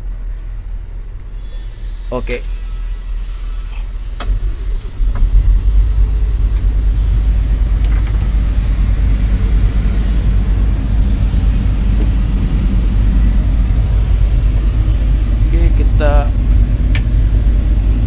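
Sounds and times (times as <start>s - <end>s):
excavator diesel engine rumbling: 0.0s - 18.0s
short high-pitched beeps: 3.3s - 5.9s.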